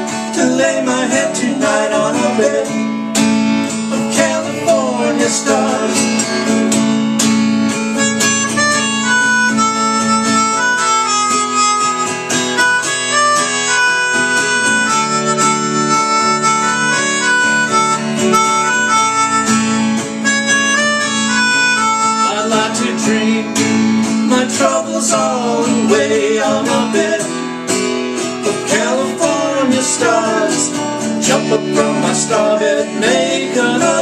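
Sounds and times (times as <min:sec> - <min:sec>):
acoustic guitar strumming: 0:00.0 - 0:34.0
melodica melody: 0:07.7 - 0:22.9.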